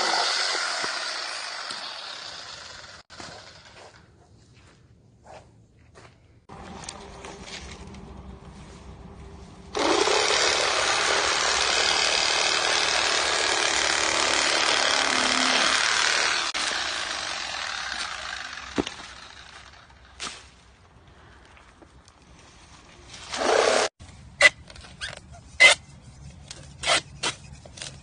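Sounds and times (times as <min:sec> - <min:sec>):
chainsaw cutting wood: 0:00.0 - 0:04.0, 0:09.7 - 0:20.2, 0:23.3 - 0:23.9.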